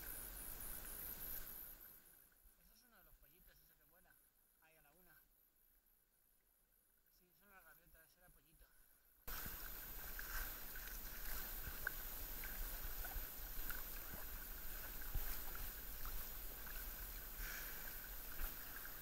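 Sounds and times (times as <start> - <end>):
paddles dipping and splashing: 9.3 - 19.0
water washing along hull: 9.3 - 19.0.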